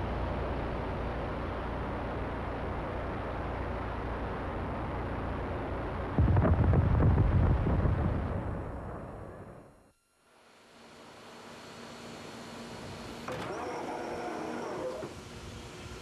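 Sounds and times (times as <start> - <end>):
steady rushing noise: 6.1 - 9.7
loud explosion with deep rumble: 6.2 - 9.1.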